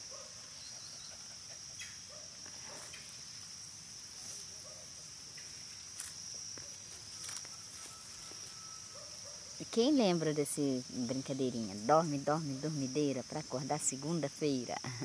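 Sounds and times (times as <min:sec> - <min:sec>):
insects chirring: 0:00.0 - 0:15.0
grass rustling by hand: 0:02.4 - 0:09.4.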